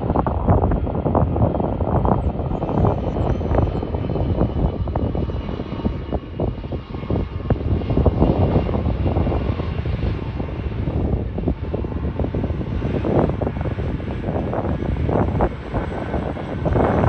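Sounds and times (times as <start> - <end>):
jet engines taxiing: 0.0 - 17.0
wind rumble on microphone: 0.0 - 17.0.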